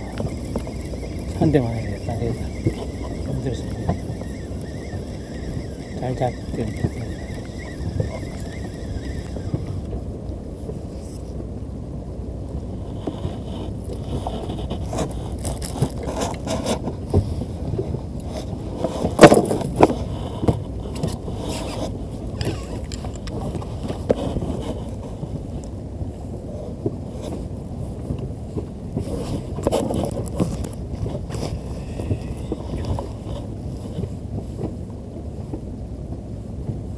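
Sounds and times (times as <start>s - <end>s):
boat engine low rumble: 0.0s - 36.9s
knocks and scrapes of gear: 13.0s - 17.4s, 18.3s - 25.2s, 29.0s - 34.8s.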